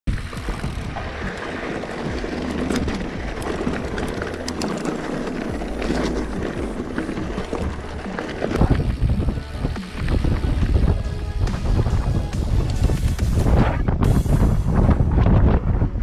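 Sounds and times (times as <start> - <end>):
bike rattles and clicks: 0.1 - 16.0
bike tyres rolling and rumbling: 0.1 - 16.0.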